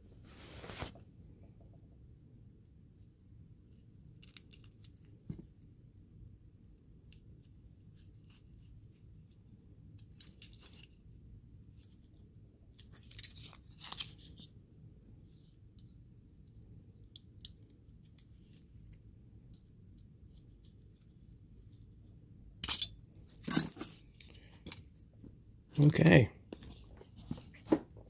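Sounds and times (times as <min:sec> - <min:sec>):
faint steady hum: 0:00.0 - 0:28.0.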